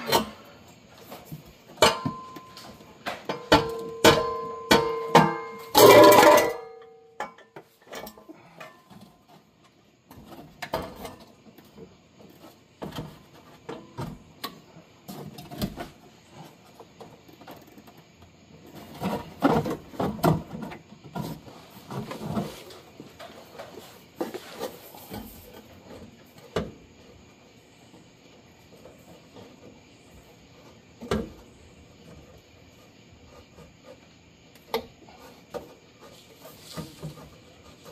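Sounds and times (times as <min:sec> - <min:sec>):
exhaust pipe clanking on metal: 0:03.3 - 0:08.8
knocks and rattles: 0:18.6 - 0:24.3.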